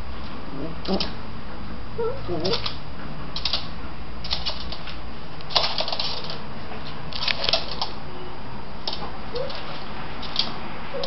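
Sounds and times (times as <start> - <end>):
pet claws clicking on wood floor: 3.4 - 6.4, 7.1 - 8.0, 8.8 - 10.6.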